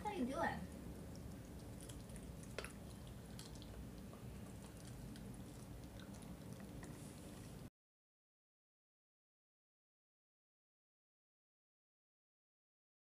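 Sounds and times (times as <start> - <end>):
puppy chewing on a bone: 0.7 - 7.7.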